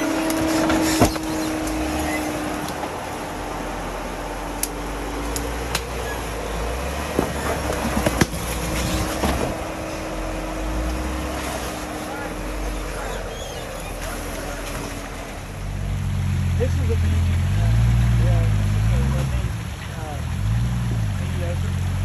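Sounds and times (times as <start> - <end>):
off-road vehicle engine drone: 0.0 - 22.0
sharp knocks and clicks: 7.1 - 9.5.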